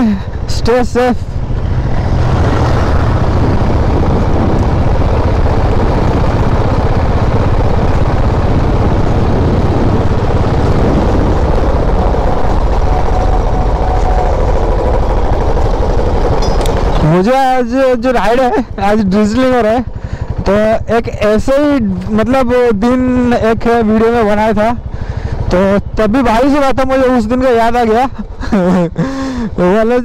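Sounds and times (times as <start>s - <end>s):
motorcycle engine running: 0.0s - 27.9s
wind rush over microphone: 0.3s - 22.2s.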